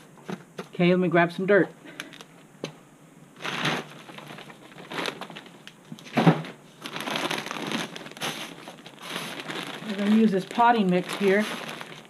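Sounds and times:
plastic bag crinkling: 3.4 - 12.0
bag thump: 6.1 - 8.5.

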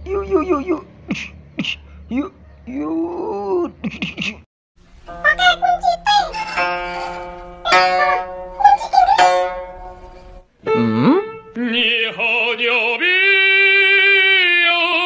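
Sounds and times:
plucked zither notes: 4.8 - 11.5.

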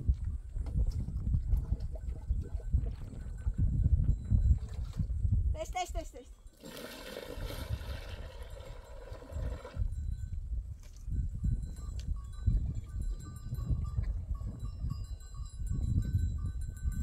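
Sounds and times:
wind rumble on microphone: 0.0 - 6.5, 7.2 - 17.0
faint livestock bells clinking: 2.0 - 5.1, 8.4 - 17.0
water pouring into plastic basin: 6.6 - 9.8.

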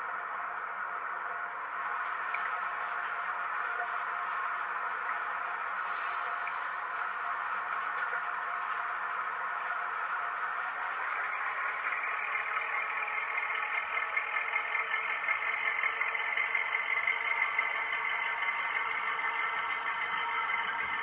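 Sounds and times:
clattering diesel engine on speaker: 10.9 - 21.0.

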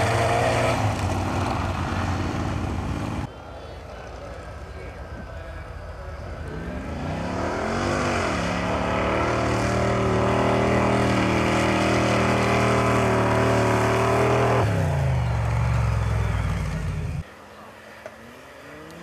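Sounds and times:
racing engine revving: 0.0 - 3.3, 6.4 - 17.2.

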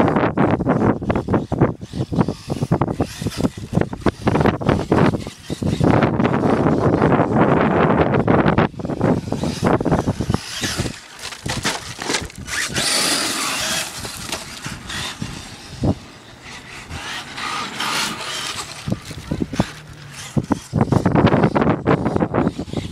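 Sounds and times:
rc truck motor and tyres: 0.0 - 22.9
tyres scrabbling on wood chips: 8.8 - 21.1.

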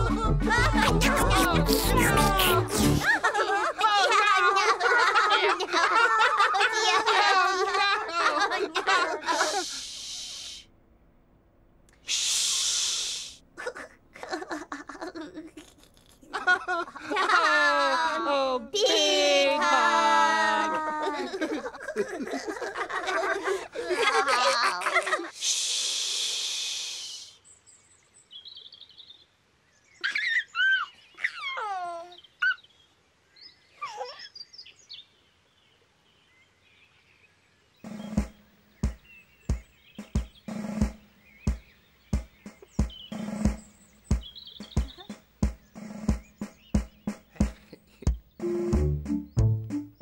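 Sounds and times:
baby giggling and cooing: 0.0 - 3.3, 44.7 - 45.2
long hisses: 9.2 - 10.7, 12.0 - 13.4, 25.4 - 27.5
bird chirps and trill: 37.8 - 50.0.

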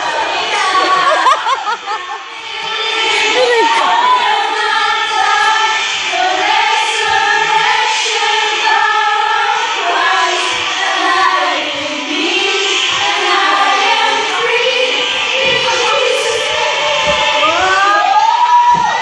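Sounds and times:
group of voices singing: 0.0 - 19.0.

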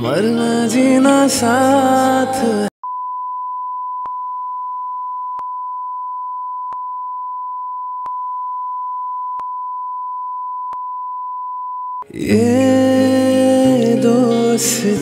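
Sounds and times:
electronic sine tone: 2.8 - 12.0.

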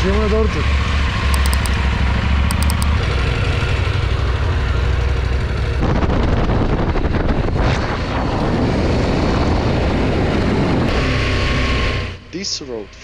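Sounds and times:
motorcycle riding along road: 0.0 - 12.9
quick high beeps: 1.4 - 1.8, 2.5 - 2.9.

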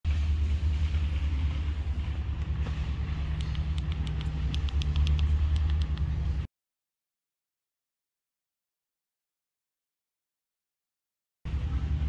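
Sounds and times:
car engine idling: 0.1 - 6.5.

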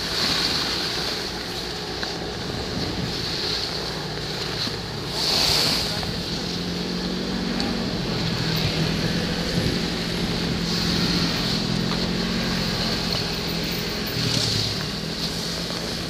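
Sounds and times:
low engine hum: 0.0 - 16.0
hiss: 5.0 - 6.5.

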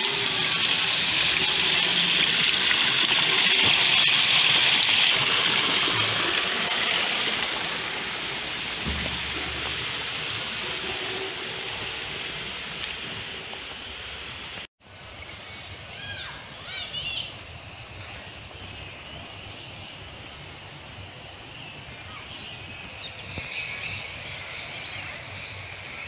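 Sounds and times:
waterfall splashing: 0.0 - 14.7.

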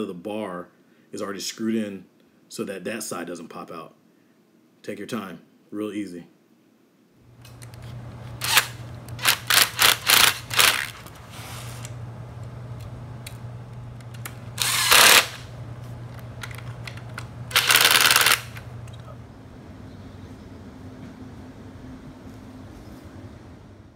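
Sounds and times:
steady low hum: 7.2 - 23.9
short scraping noises: 10.7 - 11.9.

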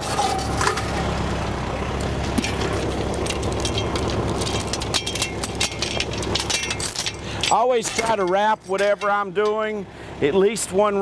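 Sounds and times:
tractor engine idling: 0.0 - 11.0
chain clinking and rattling: 3.1 - 9.6.

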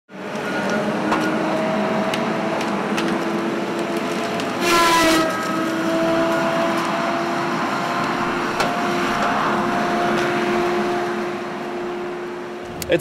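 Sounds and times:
logging machinery engine drone: 0.1 - 13.0
sharp knocks and clanks: 8.6 - 9.4.

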